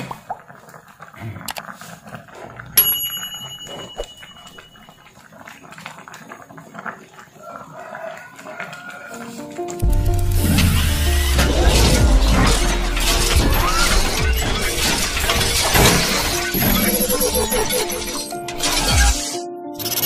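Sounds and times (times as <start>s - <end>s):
sharp ringing clink: 2.8s - 4.9s.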